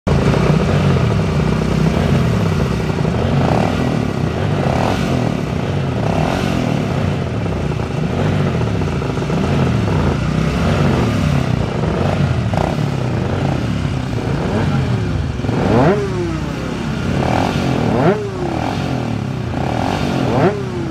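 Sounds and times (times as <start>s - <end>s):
racing motorcycle engines blipping: 0.1s - 20.9s.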